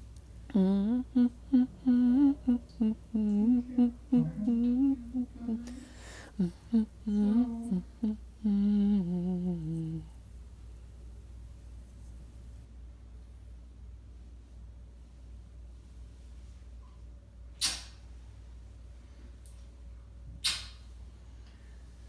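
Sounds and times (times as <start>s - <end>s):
person humming a tune: 0.5s - 10.1s.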